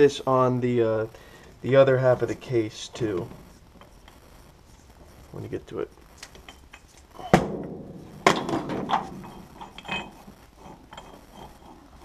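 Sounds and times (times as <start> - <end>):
metal parts clinking: 8.4 - 11.8.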